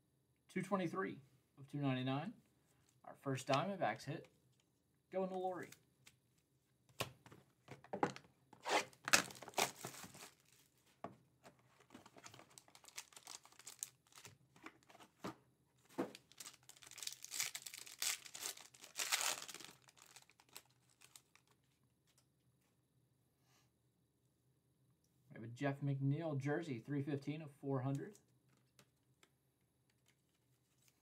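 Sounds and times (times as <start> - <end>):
foil wrapper crinkling and tearing: 9.1 - 10.6, 12.0 - 14.4, 16.2 - 21.6.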